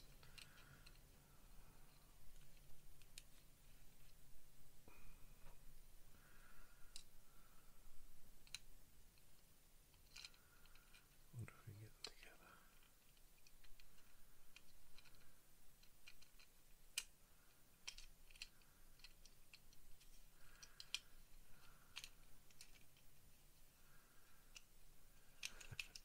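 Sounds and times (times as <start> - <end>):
plastic parts clicking and tapping: 0.0 - 1.1, 8.4 - 11.2, 12.0 - 23.2, 24.3 - 26.0.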